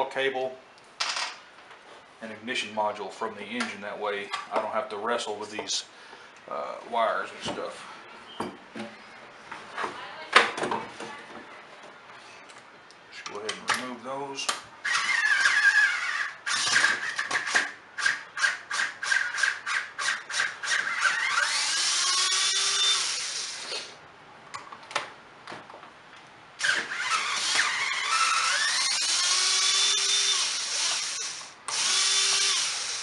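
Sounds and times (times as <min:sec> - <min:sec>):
power drill-driver whining: 0:14.8 - 0:23.9, 0:26.6 - 0:33.0.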